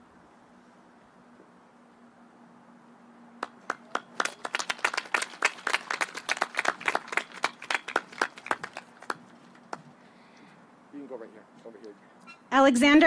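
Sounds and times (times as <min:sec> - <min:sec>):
people clapping: 0:03.4 - 0:09.9.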